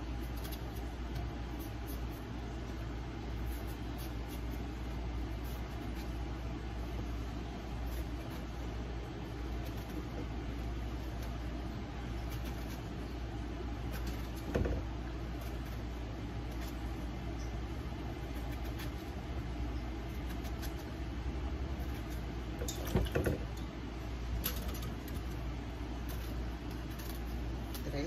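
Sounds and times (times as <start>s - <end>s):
steady low hum: 0.0s - 28.0s
knife cutting vegetables: 9.5s - 10.2s, 10.8s - 13.1s, 18.1s - 19.3s, 20.0s - 23.5s, 26.0s - 28.0s.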